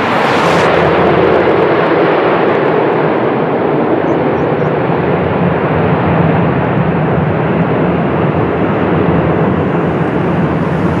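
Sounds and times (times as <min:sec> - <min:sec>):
turboprop engines droning: 0:00.0 - 0:11.0.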